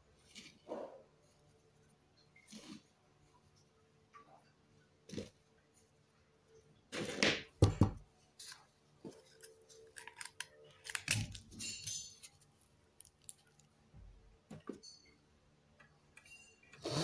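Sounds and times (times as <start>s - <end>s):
plastic bottle knock and clatter: 7.2s - 8.0s
plastic clicks and crinkles: 8.4s - 13.8s.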